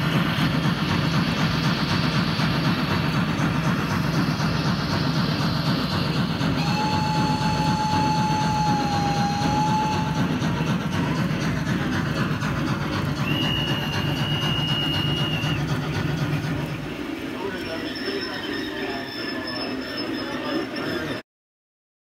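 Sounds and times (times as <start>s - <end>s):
model steam locomotive running: 0.0s - 21.2s
steam whistle: 6.3s - 10.8s, 13.2s - 15.7s.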